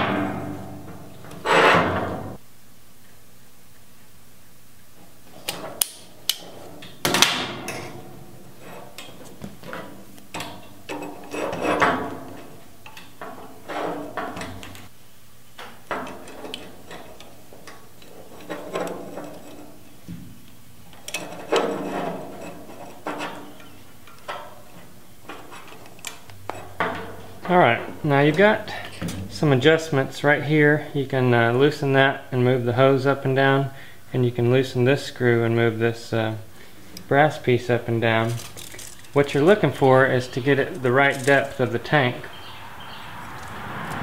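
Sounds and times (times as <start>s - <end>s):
small parts clicking and scraping: 38.2s - 39.6s, 40.6s - 41.6s.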